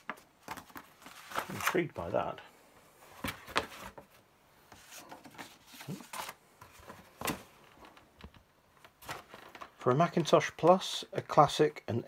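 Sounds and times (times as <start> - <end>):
paper and cardboard rustling: 0.0 - 2.2, 3.0 - 8.0, 8.8 - 10.3.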